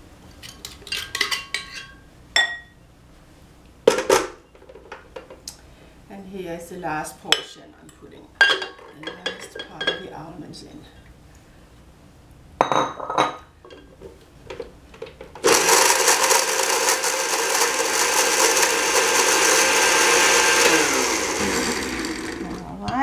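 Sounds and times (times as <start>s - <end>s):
blender grinding: 15.4s - 22.8s.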